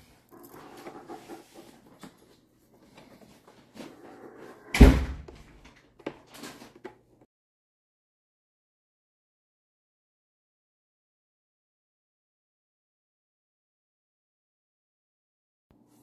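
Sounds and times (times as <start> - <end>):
loud thud: 4.8 - 5.3.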